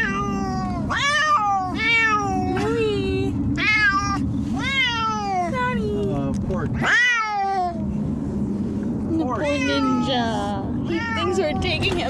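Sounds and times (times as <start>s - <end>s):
cats meowing: 0.0s - 2.6s, 3.6s - 5.5s, 6.8s - 7.8s, 9.4s - 11.8s
low road rumble: 0.0s - 12.0s.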